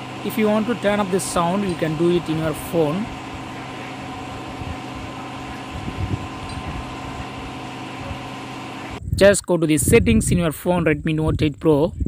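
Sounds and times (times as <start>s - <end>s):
fan humming: 0.0s - 9.1s.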